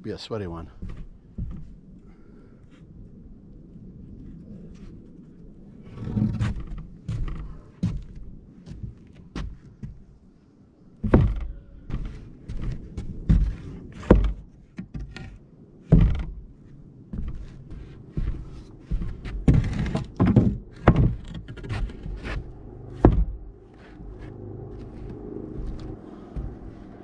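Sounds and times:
wooden studs thunking on deck: 0:11.0 - 0:16.4, 0:18.2 - 0:23.4.

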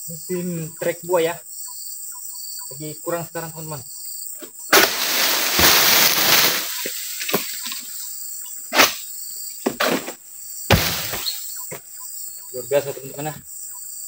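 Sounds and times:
crickets buzzing: 0:00.0 - 0:14.0
rustling and scraping through fronds: 0:04.7 - 0:08.0.

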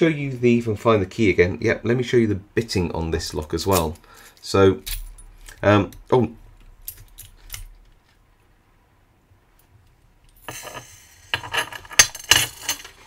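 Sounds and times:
small metal pins scattering: 0:10.3 - 0:13.0.

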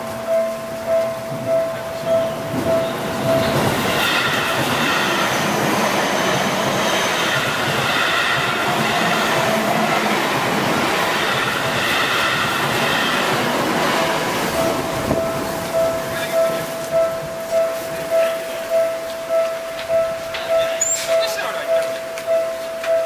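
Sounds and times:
level-crossing warning bell: 0:00.0 - 0:23.0
train wheels rolling on rails: 0:00.0 - 0:23.0
train wheels squealing: 0:02.1 - 0:10.0, 0:20.6 - 0:21.4.

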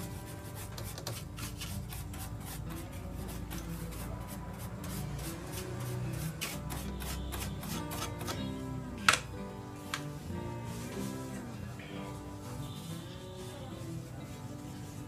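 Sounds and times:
brush scrubbing circuit board: 0:00.0 - 0:08.4
faint background music: 0:00.0 - 0:15.0.

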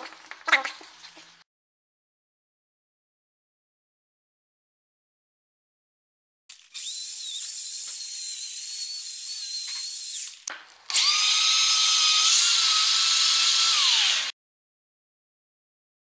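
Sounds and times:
electric drill whining: 0:06.5 - 0:14.4.

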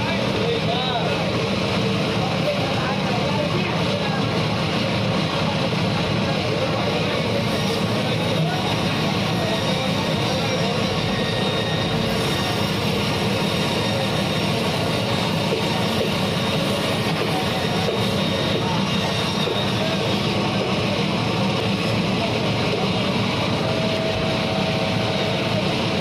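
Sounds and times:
band saw cutting: 0:07.2 - 0:26.0.

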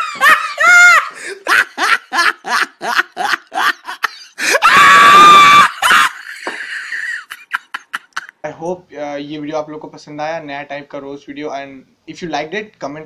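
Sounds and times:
loud scream: 0:00.0 - 0:01.2, 0:04.4 - 0:06.4
rapid laughter: 0:00.0 - 0:08.3.

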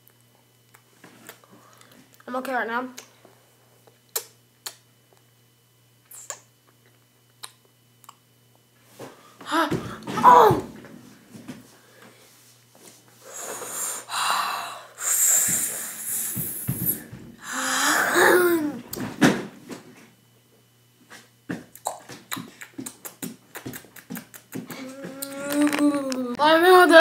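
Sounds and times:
candy chewing clicks: 0:07.3 - 0:08.2, 0:21.7 - 0:24.6
boy hissing breaths: 0:13.2 - 0:18.8
boy strained vocal sound: 0:17.4 - 0:18.8, 0:24.7 - 0:26.4.

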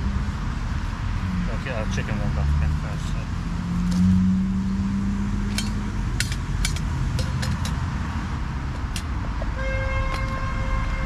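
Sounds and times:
passing road traffic: 0:00.0 - 0:11.0
metal pans clinking: 0:05.5 - 0:07.8.

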